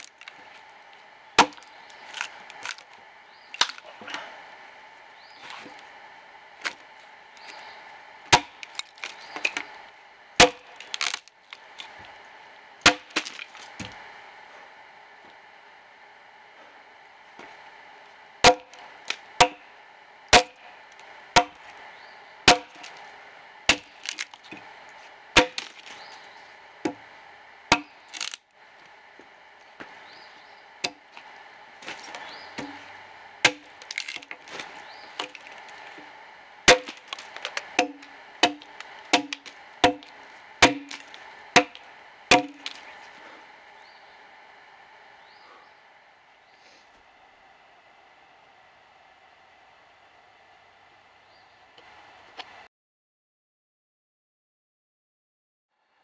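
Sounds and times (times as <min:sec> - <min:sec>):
axe chopping wood: 0:01.4 - 0:02.3, 0:08.3 - 0:09.2, 0:10.4 - 0:11.2, 0:12.8 - 0:13.8, 0:18.4 - 0:19.6, 0:20.4 - 0:20.6, 0:21.4 - 0:21.6, 0:22.5 - 0:23.0, 0:23.7 - 0:24.6, 0:25.4 - 0:26.0, 0:27.7 - 0:28.4, 0:30.8 - 0:31.2, 0:31.8 - 0:32.8, 0:33.4 - 0:34.5, 0:36.7 - 0:42.8
wood cracking: 0:03.5 - 0:03.9, 0:08.3 - 0:09.7, 0:10.4 - 0:12.0, 0:12.8 - 0:13.8, 0:23.7 - 0:24.6, 0:25.4 - 0:26.0, 0:27.7 - 0:28.4, 0:33.4 - 0:36.1, 0:36.7 - 0:42.9.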